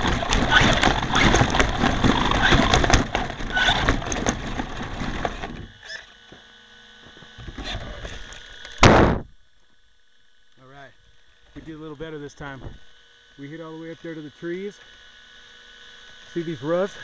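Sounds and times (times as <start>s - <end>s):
toy truck crashing: 0.0s - 5.7s
tyres spinning on gravel: 0.0s - 5.9s
steady electrical hum: 0.0s - 17.0s.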